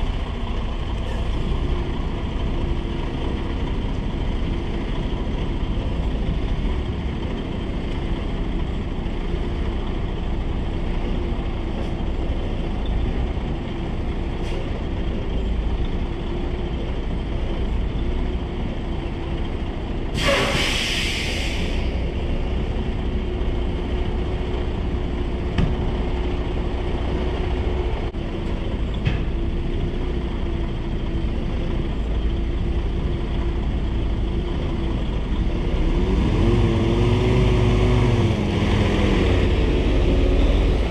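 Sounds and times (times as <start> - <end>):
diesel truck engine running: 0.0 - 40.9
air brakes hissing: 20.1 - 22.1.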